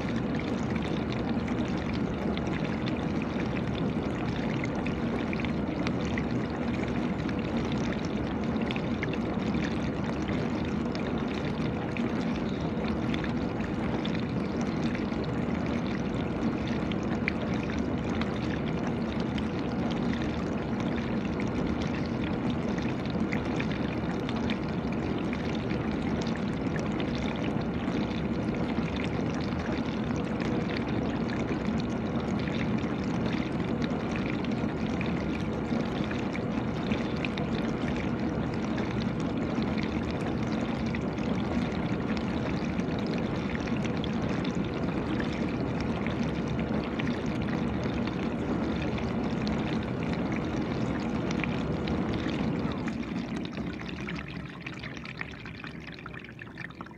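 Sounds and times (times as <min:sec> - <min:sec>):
faint steady hum: 0:00.0 - 0:56.9.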